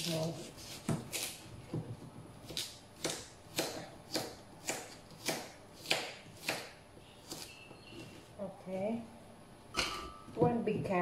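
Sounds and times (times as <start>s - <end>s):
knife slicing carrot: 0.0s - 1.4s, 2.4s - 7.6s.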